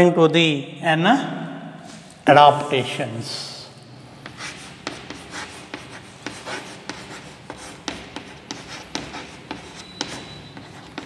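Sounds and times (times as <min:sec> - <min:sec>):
chalk writing on chalkboard: 0:04.2 - 0:11.0.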